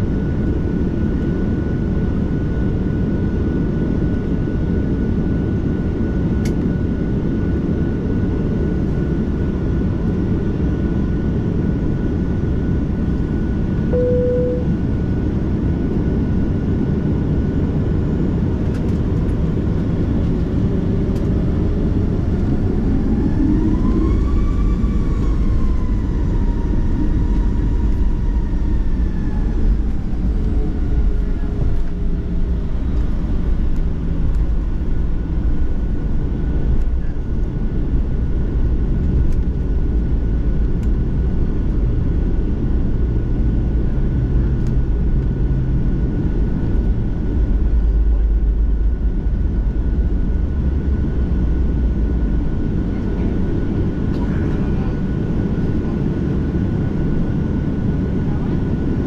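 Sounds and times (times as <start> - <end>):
constant high hum: 0.0 - 59.0
jet airliner cabin rumble: 0.0 - 59.0
brief tone: 13.9 - 14.9
rising whine: 13.9 - 15.0.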